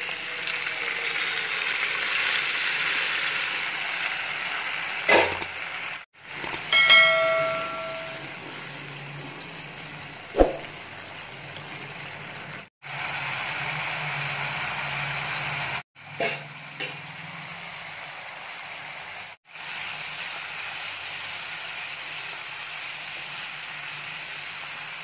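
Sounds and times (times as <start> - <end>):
curry sizzling and bubbling: 0.0 - 25.0
utensil clanging on pan: 6.7 - 8.3.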